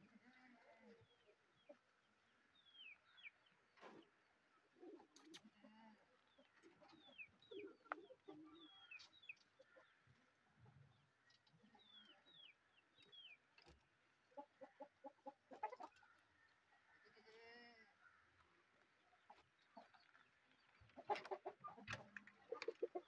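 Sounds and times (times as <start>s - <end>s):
chickens clucking: 0.0s - 17.5s, 18.3s - 23.0s
chicks peeping: 19.2s - 23.0s.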